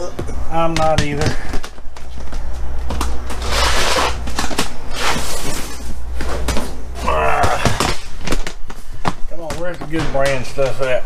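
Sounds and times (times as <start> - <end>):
plastic totes rustling and knocking: 7.7 - 11.0.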